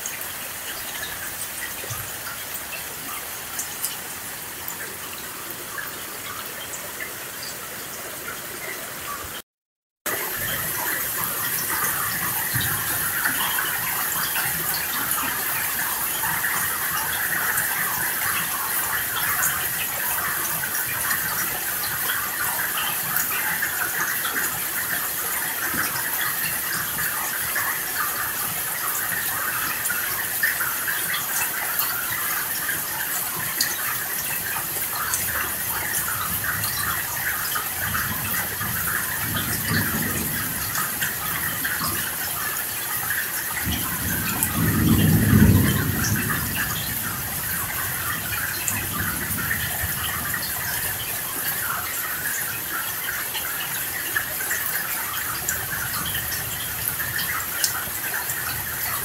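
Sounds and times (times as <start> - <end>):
heavy rain: 0.0 - 9.4, 10.1 - 59.0
thunder rumbling: 37.8 - 42.0, 43.6 - 50.6.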